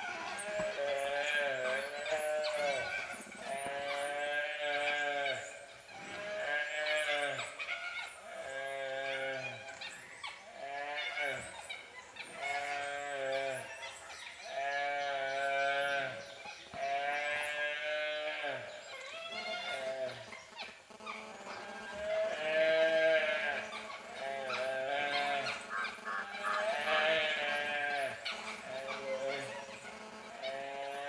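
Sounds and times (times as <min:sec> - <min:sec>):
calf bleating in distress: 0:03.5 - 0:05.4, 0:06.1 - 0:07.4, 0:16.8 - 0:18.7, 0:21.5 - 0:23.6, 0:24.2 - 0:25.5, 0:26.2 - 0:29.4.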